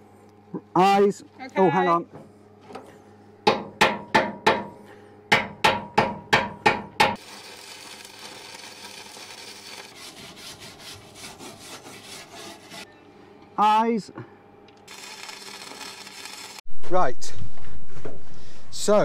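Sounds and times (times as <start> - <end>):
arc welder crackling: 7.0 - 11.7, 14.6 - 16.7.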